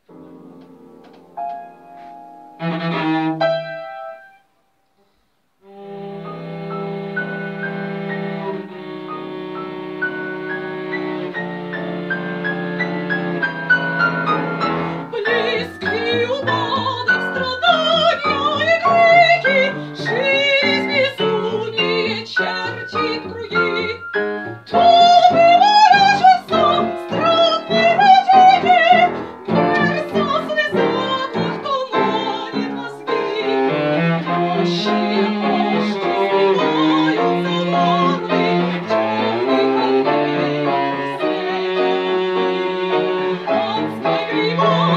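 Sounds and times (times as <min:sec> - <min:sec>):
piano chords: 0:00.0 - 0:04.5, 0:05.6 - 0:44.9
cello: 0:01.1 - 0:04.4, 0:05.6 - 0:44.9
woman singing classical style: 0:14.8 - 0:44.9.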